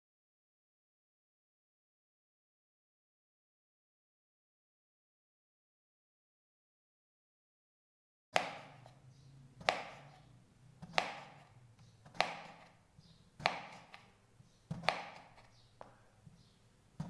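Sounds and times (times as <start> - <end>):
knife slicing potato: 8.4 - 15.8.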